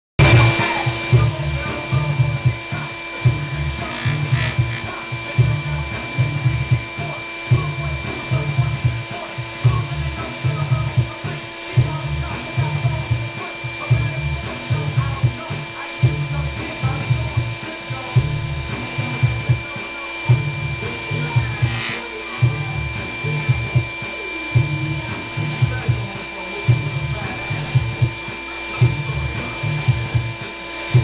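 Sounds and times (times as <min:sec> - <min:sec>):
lathe motor whine: 0:00.2 - 0:31.0
low pulsing hum: 0:00.2 - 0:31.0
sandpaper rubbing on foam: 0:20.9 - 0:22.1.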